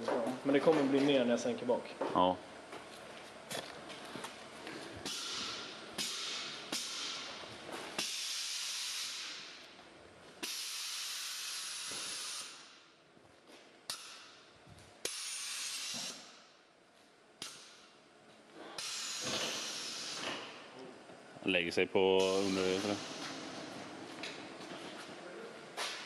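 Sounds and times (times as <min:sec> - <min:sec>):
air suspension venting hiss: 0:05.0 - 0:09.7, 0:10.4 - 0:12.8, 0:15.0 - 0:16.5, 0:18.6 - 0:20.7, 0:22.2 - 0:24.0.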